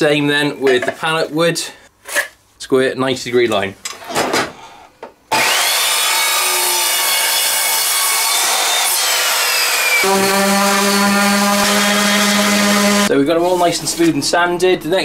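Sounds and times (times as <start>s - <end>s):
mitre saw cutting wood: 5.3s - 13.1s
electric sander humming: 5.4s - 13.1s.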